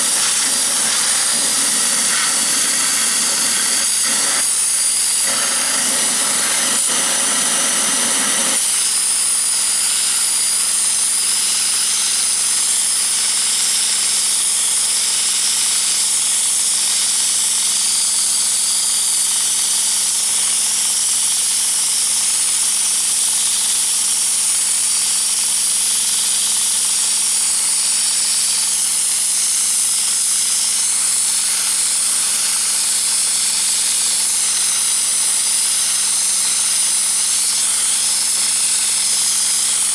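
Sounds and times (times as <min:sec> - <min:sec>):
high pressure spray hissing: 0:00.0 - 0:14.3, 0:27.0 - 0:39.9.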